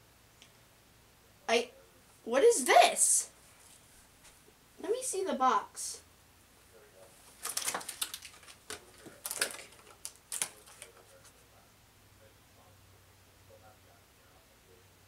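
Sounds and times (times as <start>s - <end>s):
toy packaging clicks and rustles: 7.3s - 11.1s.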